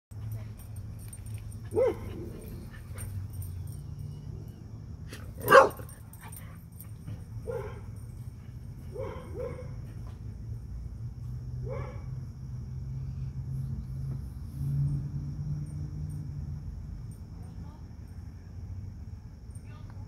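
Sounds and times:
dog barking: 1.7s - 2.6s, 5.2s - 6.0s, 7.4s - 7.9s, 8.9s - 9.8s, 11.6s - 12.2s.

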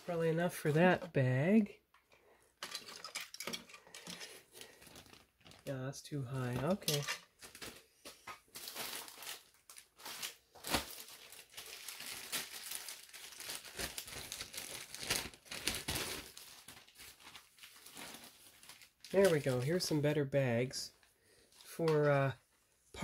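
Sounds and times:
plastic bags crinkling: 2.6s - 5.7s, 6.4s - 20.0s.

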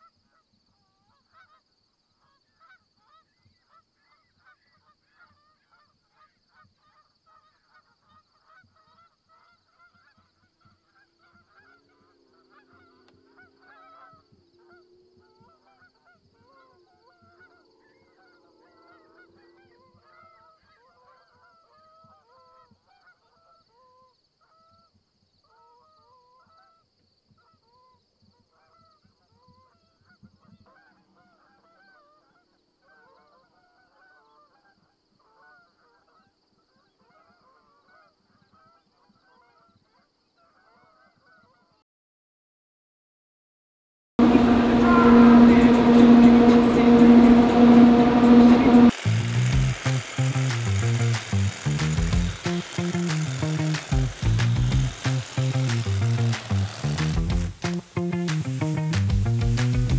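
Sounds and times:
geese honking: 11.2s - 14.8s, 44.2s - 59.9s
low steady hum: 44.2s - 52.4s.

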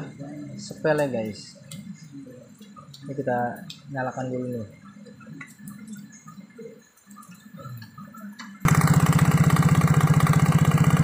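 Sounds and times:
scooter engine rattling knock: 8.7s - 11.0s.

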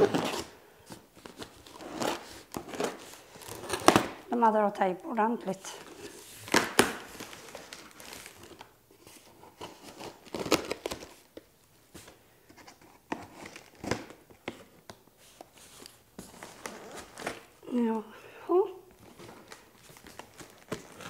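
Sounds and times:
packing tape ripping: 0.0s - 0.5s, 1.2s - 4.3s, 5.9s - 8.7s, 9.6s - 11.2s
cardboard rustling: 0.0s - 4.2s, 5.4s - 17.6s, 18.9s - 21.0s.

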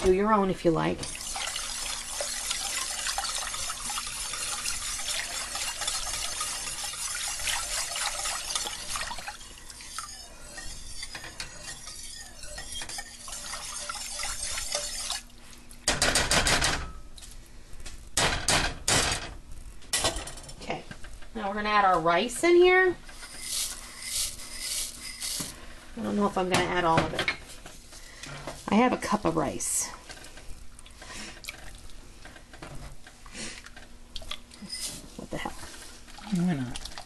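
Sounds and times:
whisk clanking against pot: 1.0s - 15.2s
whisk swishing in soup: 1.1s - 15.3s.

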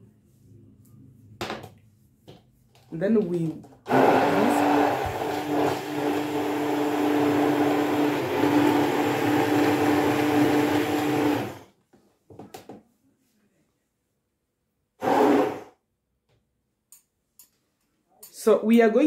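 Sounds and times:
immersion blender motor humming: 3.9s - 11.6s.

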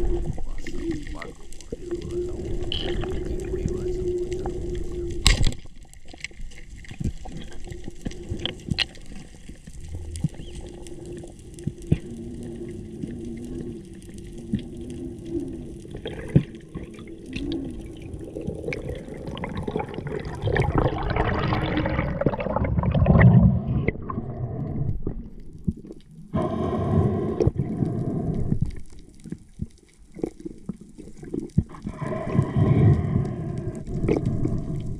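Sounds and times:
water rushing: 0.0s - 11.1s, 11.8s - 23.2s
underwater clicks: 0.0s - 34.9s.

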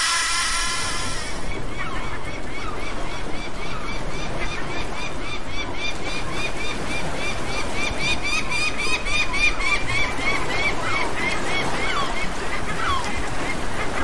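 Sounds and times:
steady background hiss: 0.0s - 1.5s
gulls calling: 0.0s - 14.0s.

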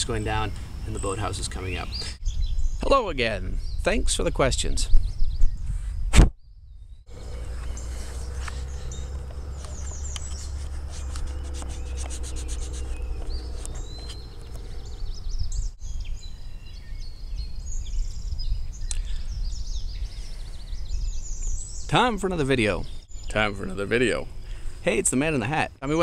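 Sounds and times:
birds chirping: 0.0s - 2.9s, 6.7s - 26.0s
steady low rumble: 7.1s - 15.8s.

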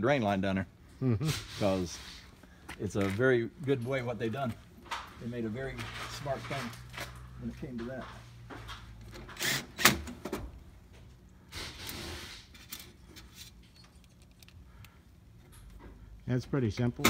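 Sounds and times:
metal tools clicking and clanking: 12.6s - 14.6s.

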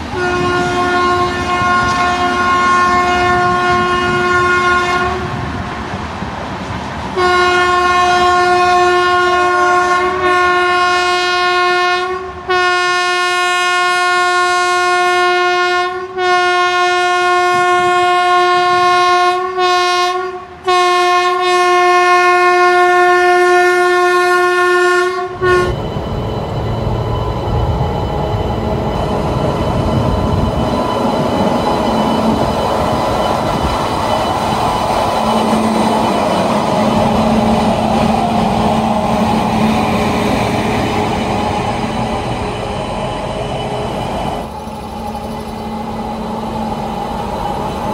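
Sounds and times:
train rumble and clickety-clack: 0.0s - 47.9s
locomotive horn: 0.1s - 5.4s, 7.2s - 25.8s.

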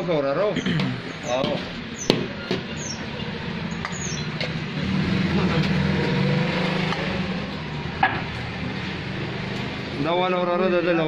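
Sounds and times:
passing traffic hum: 0.0s - 11.0s.

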